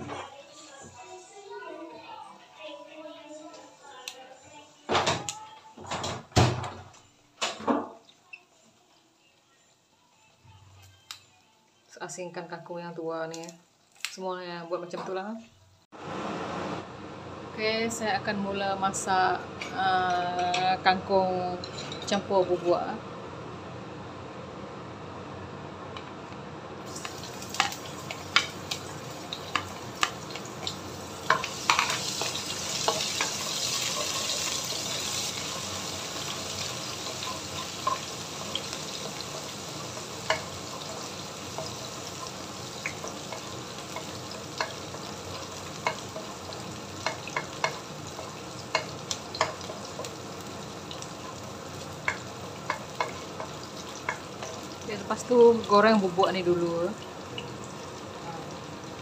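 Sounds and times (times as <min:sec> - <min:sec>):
onion sizzling in hot oil: 0:26.8 - 0:59.0
wooden spoon tapping and scraping: 0:52.0 - 0:54.6.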